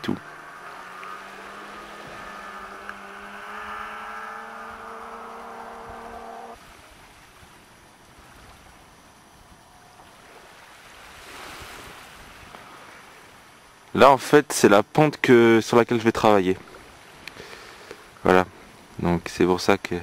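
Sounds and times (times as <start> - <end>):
distant snowmobile engines: 0.0 - 6.7
faint outdoor hiss: 0.0 - 20.0.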